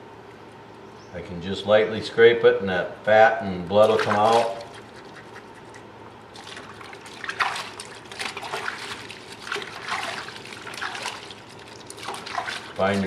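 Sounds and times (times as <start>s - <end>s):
water splashing in a basin: 3.7s - 5.3s, 6.3s - 13.0s.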